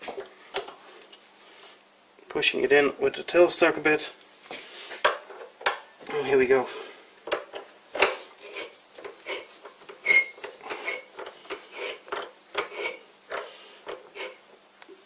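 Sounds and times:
short squeak: 10.0 - 11.0.

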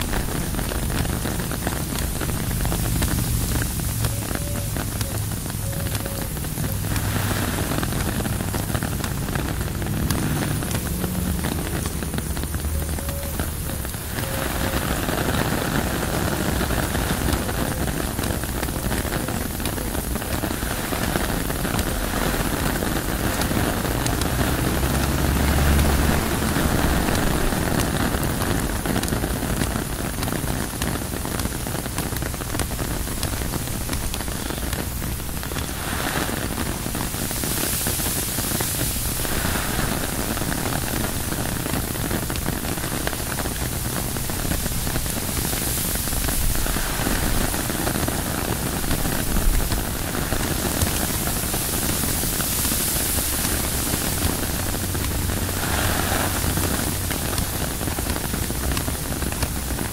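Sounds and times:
deep rumble: 0.0 - 14.8
rain on tent fabric: 0.0 - 59.9
wind: 0.0 - 59.9.

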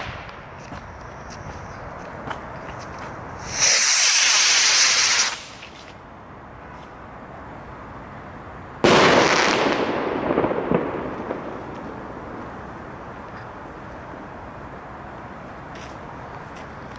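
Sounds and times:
firecracker bang with echo: 8.8 - 12.5.

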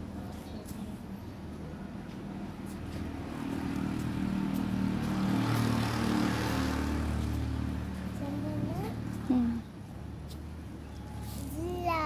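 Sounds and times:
vehicle passing on road: 1.8 - 12.0.

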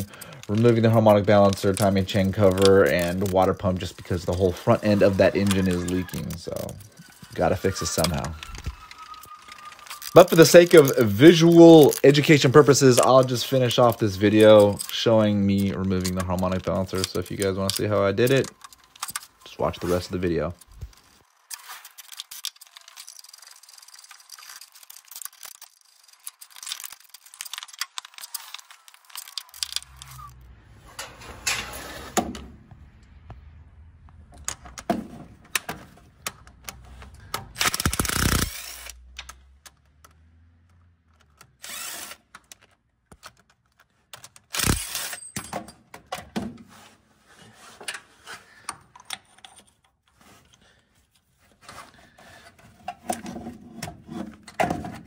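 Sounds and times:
metal tools clanking: 0.0 - 20.5, 28.8 - 32.1
cordless drill bursts: 37.6 - 39.0, 41.6 - 42.2, 44.5 - 45.2.

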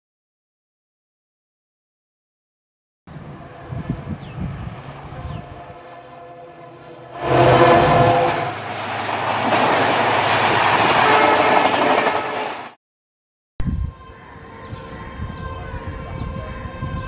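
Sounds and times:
diesel locomotive passing at speed: 3.1 - 12.8, 13.7 - 17.0
quiet steady rail sound: 3.1 - 12.8.

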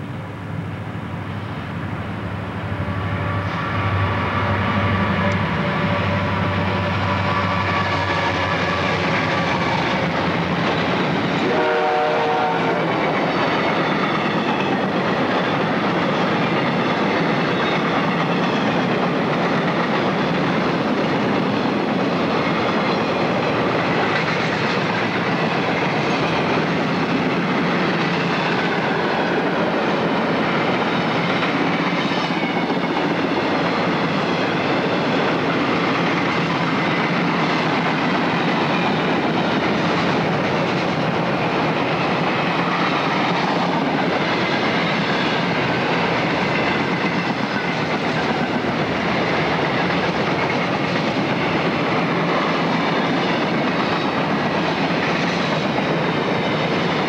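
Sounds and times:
diesel locomotive engine drone: 0.0 - 57.0
train wheels rumbling on rails: 0.0 - 57.0
train horn: 2.6 - 10.0, 11.4 - 13.1.

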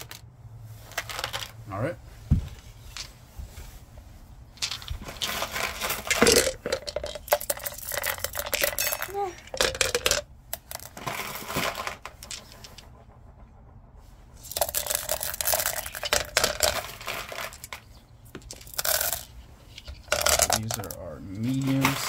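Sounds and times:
stones clattering into barrel: 4.6 - 10.2.

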